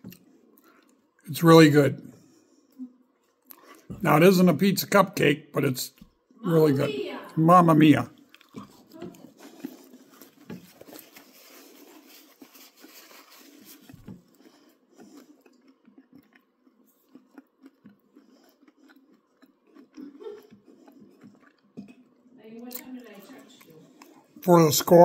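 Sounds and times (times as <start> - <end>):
person chewing with mouth clicks: 0.0 - 1.1, 2.7 - 4.0, 8.2 - 22.9, 23.6 - 24.4.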